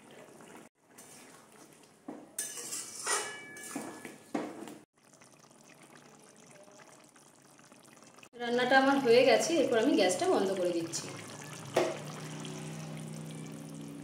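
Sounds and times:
metal spatula scraping a pan: 0:00.9 - 0:01.5, 0:02.4 - 0:04.0.

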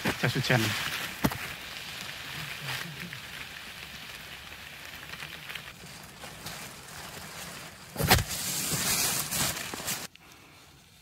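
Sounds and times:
close rustling on microphone: 0:00.0 - 0:10.1
rain on foliage and plastic: 0:00.0 - 0:10.1.

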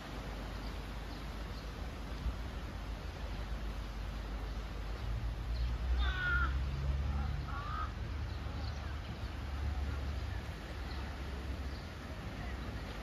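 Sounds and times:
bird harsh calls: 0:06.0 - 0:06.6.

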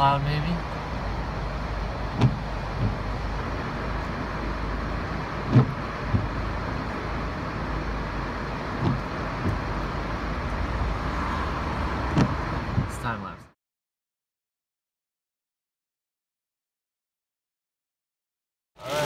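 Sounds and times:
windshield wipers thumping: 0:00.6 - 0:11.0, 0:11.8 - 0:13.2.

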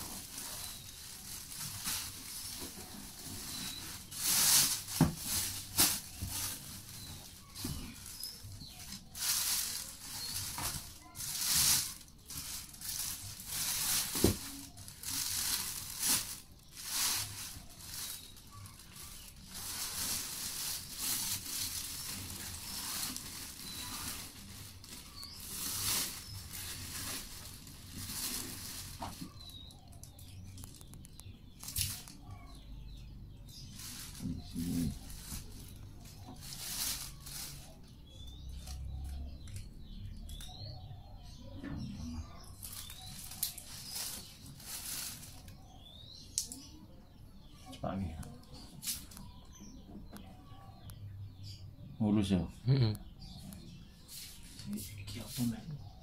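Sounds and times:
plastic packaging crinkling: 0:00.0 - 0:32.5, 0:33.5 - 0:39.6, 0:42.4 - 0:46.6.

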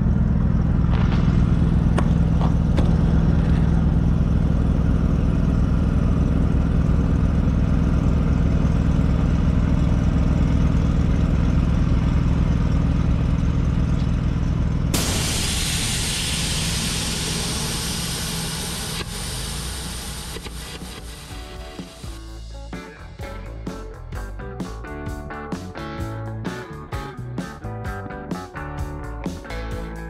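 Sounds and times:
engine droning: 0:00.0 - 0:30.0.

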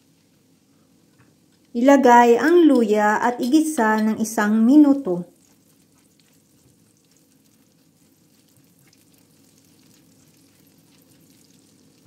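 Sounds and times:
garlic sizzling in oil: 0:03.4 - 0:12.0.

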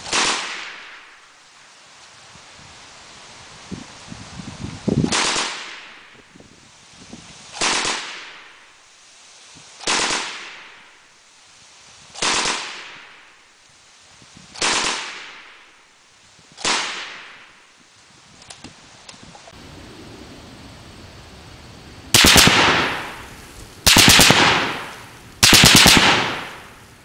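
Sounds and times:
automatic gunfire bursts: 0:22.1 - 0:26.8.

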